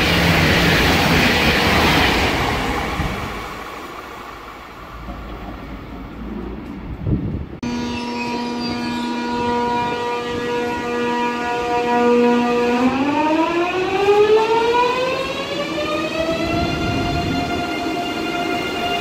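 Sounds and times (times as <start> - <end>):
electric train converter whining: 7.6 - 19.0.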